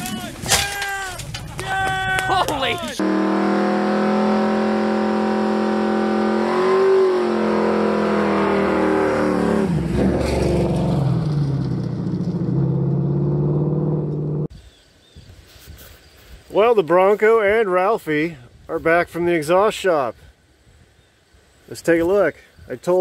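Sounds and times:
car engine revving high: 3.0 - 14.5.

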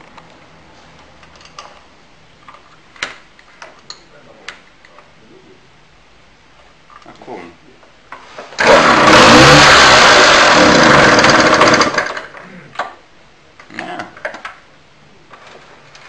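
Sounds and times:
moped two-stroke engine running: 8.6 - 12.4.

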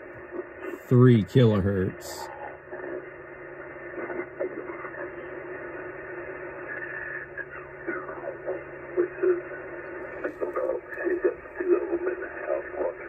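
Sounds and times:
radio receiver hiss: 0.0 - 13.0
garbled radio voice: 0.6 - 2.6, 7.4 - 9.6, 10.2 - 13.0.

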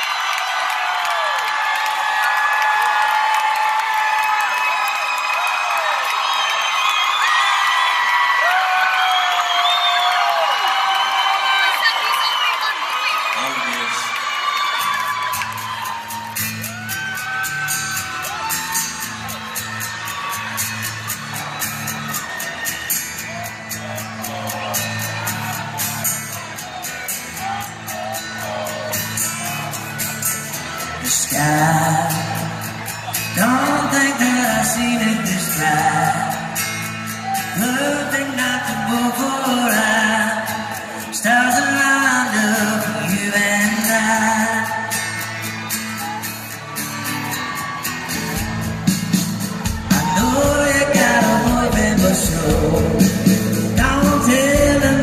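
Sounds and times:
people singing and whooping: 0.0 - 11.8, 14.2 - 55.0
acoustic guitars playing: 14.7 - 55.0
person singing: 31.0 - 36.6, 37.3 - 45.1, 49.7 - 55.0.

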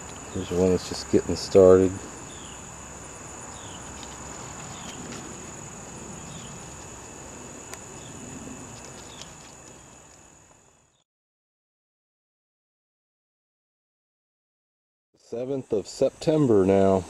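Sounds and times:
insects trilling: 0.0 - 11.0, 15.2 - 17.0.

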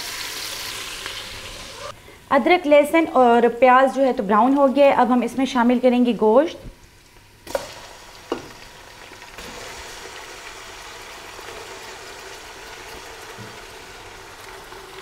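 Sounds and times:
meat sizzling in oil: 0.0 - 1.9, 7.5 - 15.0.

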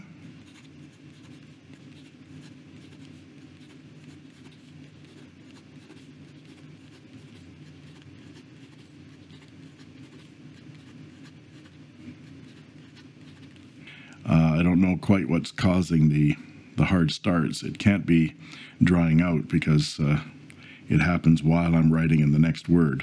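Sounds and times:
pen scratching on paper: 0.0 - 13.8
low background hum: 0.0 - 23.0.

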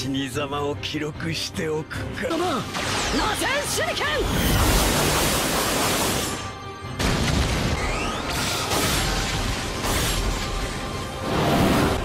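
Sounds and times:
background music: 0.0 - 12.0
explosions and booms: 7.0 - 12.0.

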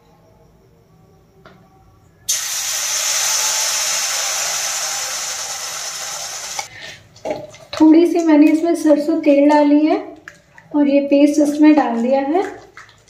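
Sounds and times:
batter sizzling in hot oil: 2.3 - 6.7.

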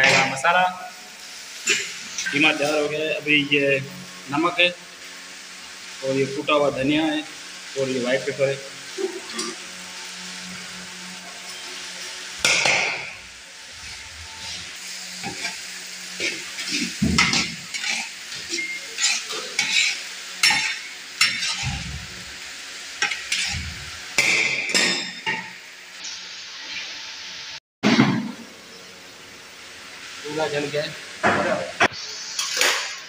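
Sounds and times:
meat sizzling in a wok: 0.0 - 27.6, 28.4 - 33.0
metal spatula scraping a pan: 16.2 - 22.2, 23.0 - 24.0.

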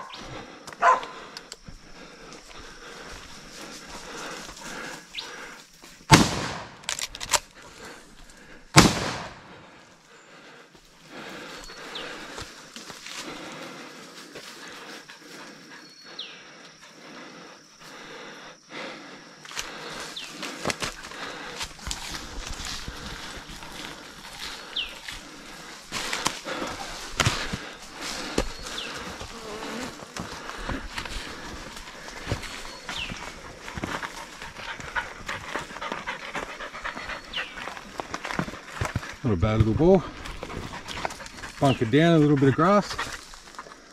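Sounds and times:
insects buzzing: 0.0 - 43.9
rifle shots with echo: 6.1 - 6.9, 8.8 - 9.6
bird chirping: 15.4 - 16.6, 24.4 - 25.5, 28.2 - 29.9, 32.2 - 38.0
footsteps crunching through leaves: 20.1 - 35.7.

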